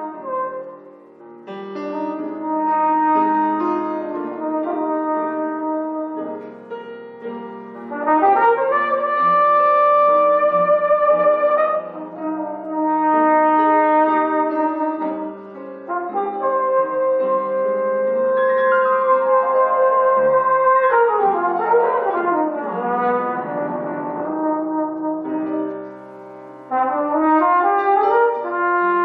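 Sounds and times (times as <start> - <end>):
flugelhorn melody: 0.0 - 29.0
piano chords: 0.0 - 29.0.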